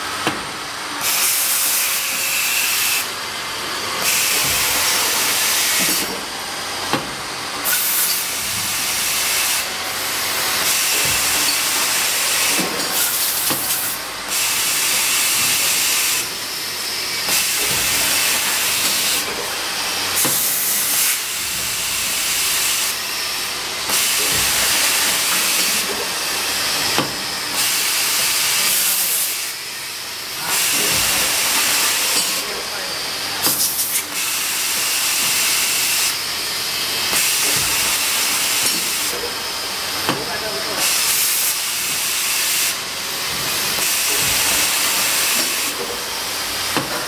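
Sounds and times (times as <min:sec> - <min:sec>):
compressed air hissing bursts: 0:01.0 - 0:03.2, 0:03.8 - 0:06.4, 0:07.3 - 0:16.4, 0:33.3 - 0:40.0, 0:40.7 - 0:46.8.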